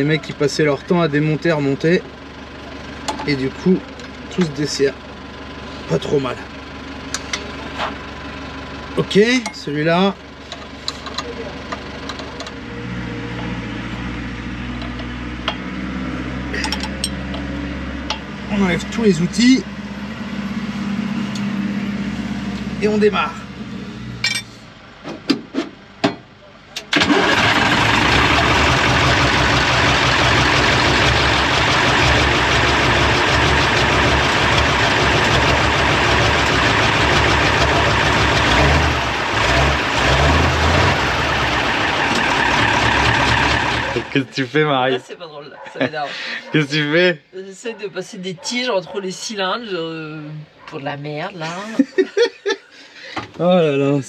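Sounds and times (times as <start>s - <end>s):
diesel engine clattering: 0.0s - 12.7s, 16.4s - 46.9s.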